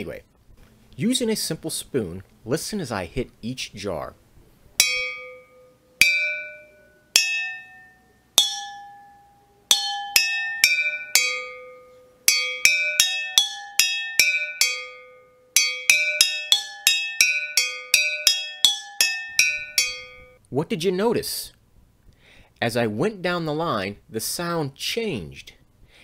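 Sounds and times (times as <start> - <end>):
spoon striking glass jars: 4.8 - 20.4.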